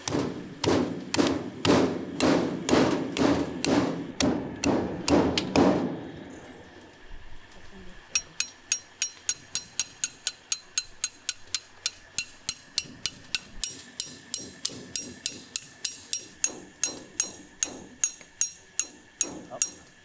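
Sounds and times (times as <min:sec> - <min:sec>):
dull knock of blade: 0:00.1 - 0:06.0
metallic clinks of knife tapping: 0:08.2 - 0:12.6, 0:18.0 - 0:19.9.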